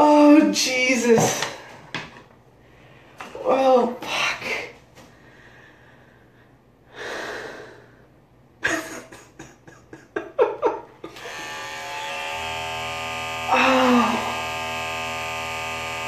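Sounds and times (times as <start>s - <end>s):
loud breath: 5.2s - 8.1s
electric hair clippers buzzing: 11.1s - 16.0s.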